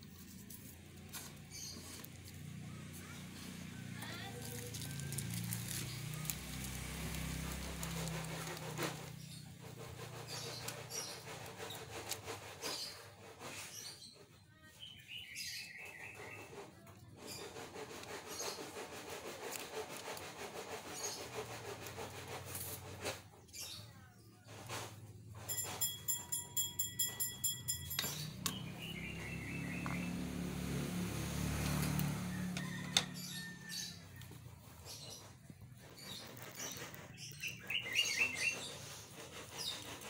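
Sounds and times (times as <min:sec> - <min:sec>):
plastic packaging crinkling: 0:04.4 - 0:08.6.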